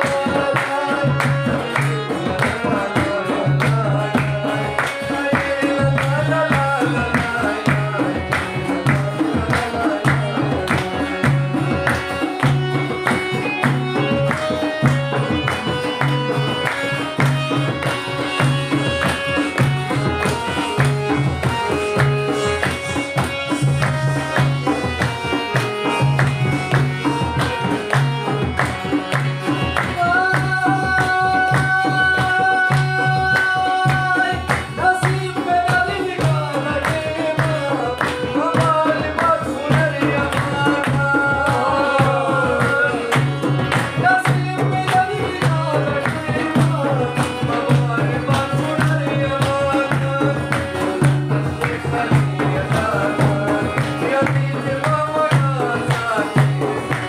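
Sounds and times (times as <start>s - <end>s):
harmonium melody: 0.0s - 57.0s
frame drum beat: 5.1s - 57.0s.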